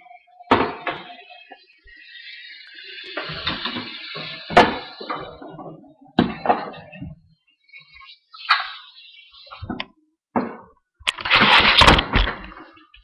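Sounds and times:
water running into a steel sink: 0.8s - 6.8s.

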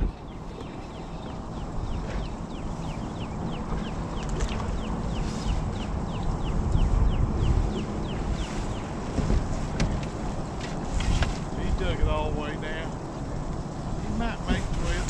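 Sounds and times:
bird chirping: 0.0s - 10.0s
wind buffeting microphone: 0.0s - 15.0s.

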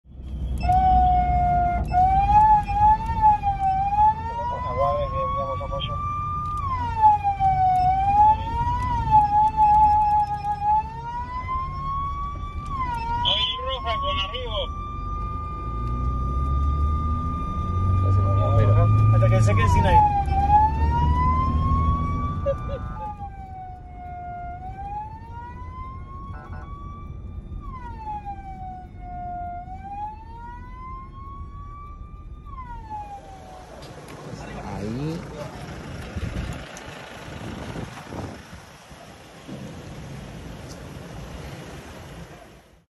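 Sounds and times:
road noise: 0.0s - 42.9s
vehicle engine rumble: 0.0s - 42.9s
short extra siren tone: 0.2s - 34.5s
siren wailing: 0.2s - 36.0s.

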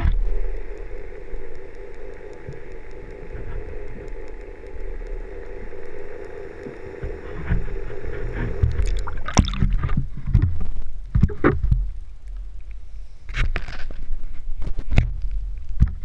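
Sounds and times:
water splashes: 0.0s - 11.9s
muffled underwater hum: 0.0s - 16.0s.

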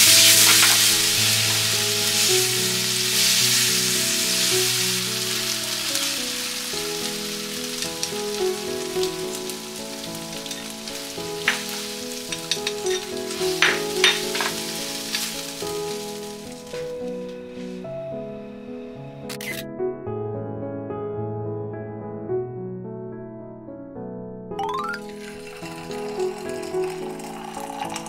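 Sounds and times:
food sizzling in a frying pan: 0.0s - 17.7s, 24.6s - 28.0s
background music: 0.0s - 23.1s, 24.4s - 28.0s
utensil clicking against pan: 11.4s - 15.3s.

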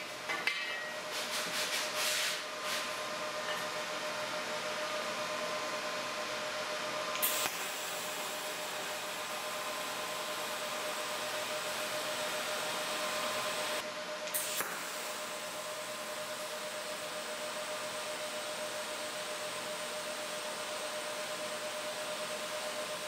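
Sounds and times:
welding arc hissing: 7.2s - 17.9s.

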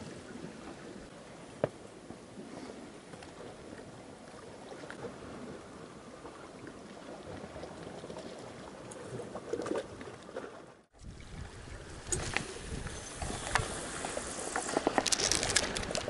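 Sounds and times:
waves lapping on rocky shore: 11.0s - 16.0s.

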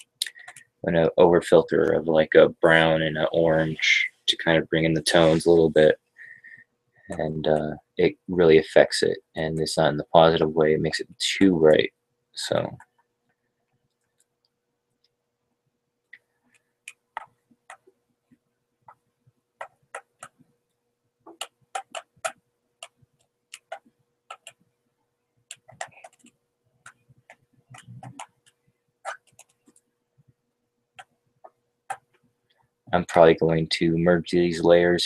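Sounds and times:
faint steady hum: 0.0s - 35.0s
mouse and keyboard clicks: 23.6s - 24.6s.

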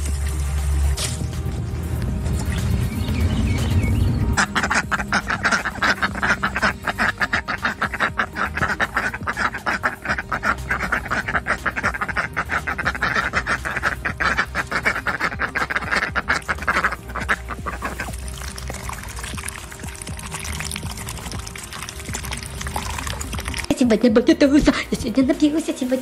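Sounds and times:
ducks quacking rapidly: 4.4s - 23.7s.

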